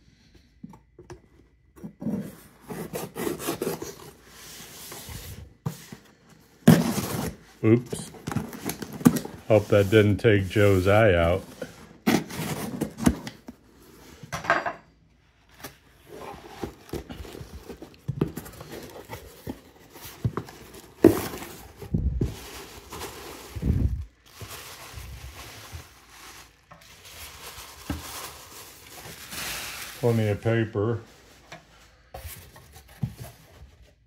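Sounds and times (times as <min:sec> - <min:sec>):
tissue paper rustling: 0:15.8 - 0:31.4.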